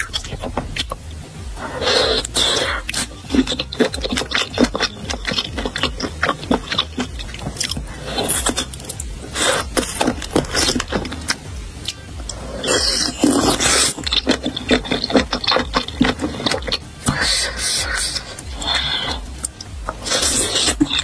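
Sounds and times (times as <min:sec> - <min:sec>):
person chewing food: 0:00.0 - 0:21.0
wet mouth clicks and smacks: 0:02.2 - 0:07.8, 0:09.7 - 0:12.4, 0:13.2 - 0:21.0.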